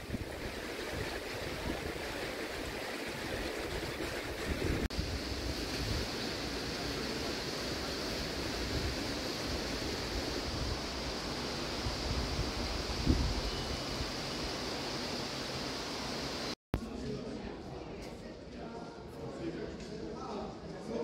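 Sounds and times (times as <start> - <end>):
wind buffeting microphone: 0.0 - 6.2, 11.8 - 13.7.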